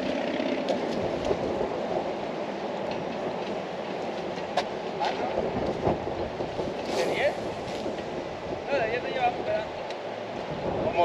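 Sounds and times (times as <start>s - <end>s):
traffic rumble on bridge overhead: 0.0s - 11.0s.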